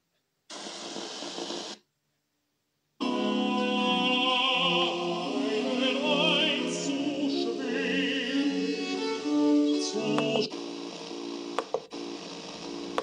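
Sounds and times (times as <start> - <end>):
opera singing with orchestra: 3.0 - 10.5.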